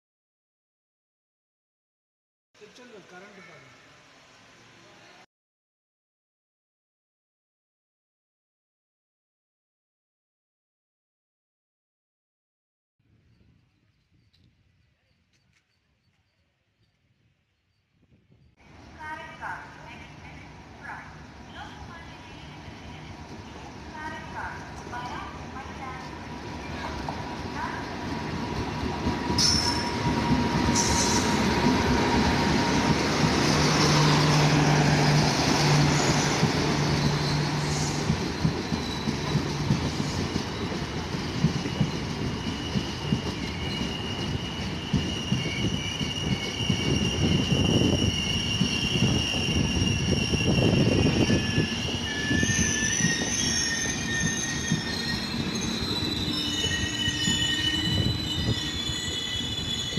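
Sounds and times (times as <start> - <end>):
train coaches rumbling past: 18.6 - 59.9
wheels squealing: 26.0 - 59.9.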